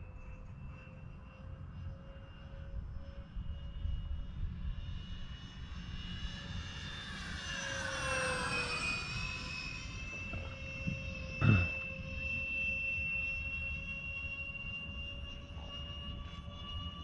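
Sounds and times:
electric ducted fans whining: 7.6 - 12.3.

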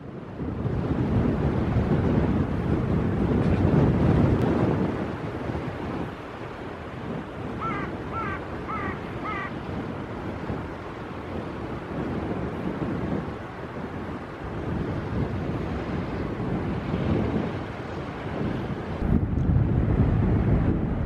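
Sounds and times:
choppy water: 0.0 - 21.0
wind buffeting microphone: 0.0 - 21.0
bird calling: 7.6 - 9.6.

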